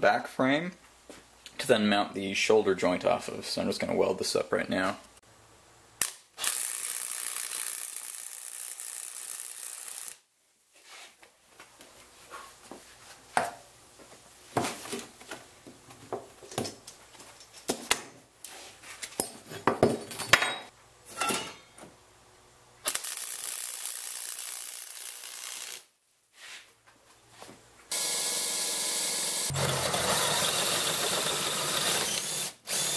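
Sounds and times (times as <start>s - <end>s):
welding arc crackling and hissing: 22.9s - 25.9s.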